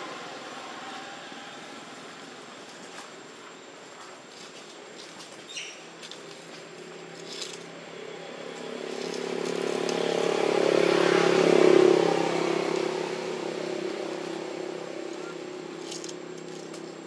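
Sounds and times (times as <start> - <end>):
vehicle engine passing by: 7.1 - 17.0.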